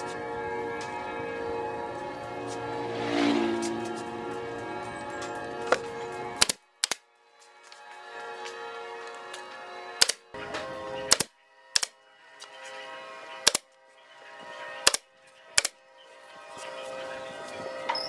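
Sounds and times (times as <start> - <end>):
background music: 0.0 - 18.0
nail gun shots: 6.4 - 7.0, 10.0 - 12.0, 13.4 - 13.7, 14.8 - 15.8.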